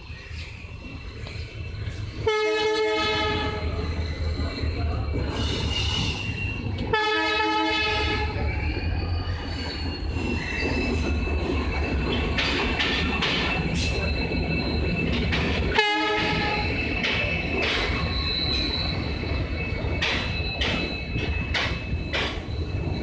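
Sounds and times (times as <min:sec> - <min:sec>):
high wheel squeal: 0:00.0 - 0:23.0
train rumbling: 0:00.0 - 0:23.0
locomotive horn: 0:02.2 - 0:03.7, 0:06.8 - 0:08.4, 0:15.7 - 0:16.7.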